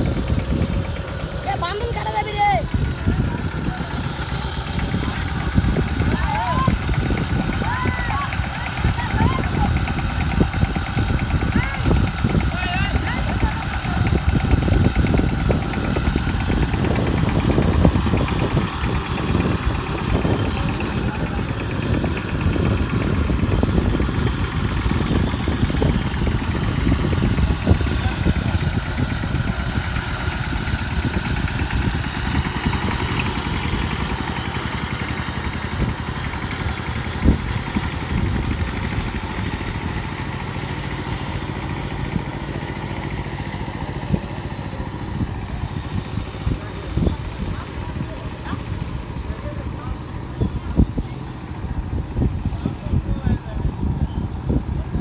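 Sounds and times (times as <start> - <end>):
tractor engine chugging: 0.0 - 55.0.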